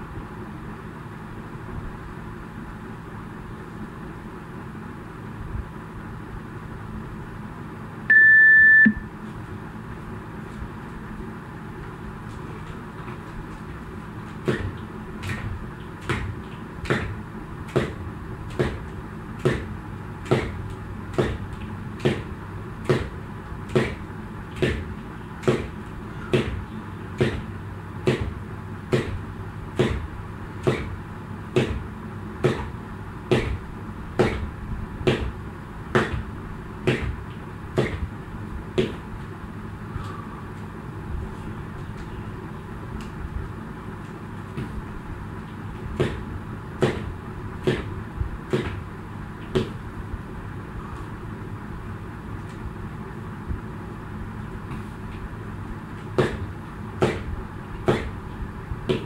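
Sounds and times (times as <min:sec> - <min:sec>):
low hum: 0:08.0 - 0:14.3
jump rope slapping floor: 0:14.3 - 0:26.6, 0:27.2 - 0:38.1, 0:38.8 - 0:39.0, 0:45.7 - 0:49.8, 0:56.0 - 0:58.2.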